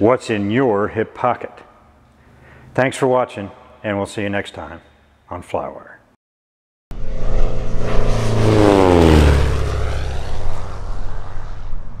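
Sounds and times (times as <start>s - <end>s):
aircraft flying past: 6.9s - 12.0s.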